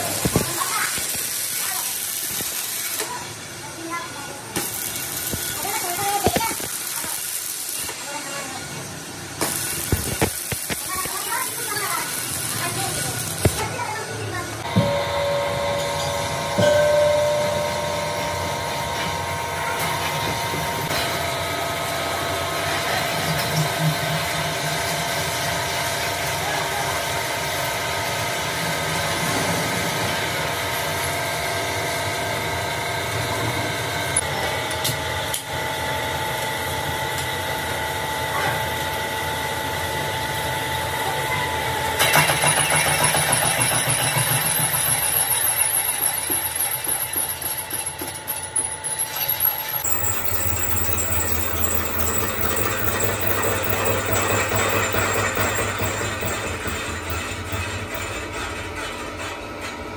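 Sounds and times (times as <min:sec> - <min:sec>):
lathe machine whine: 0:48.6 - 0:58.3.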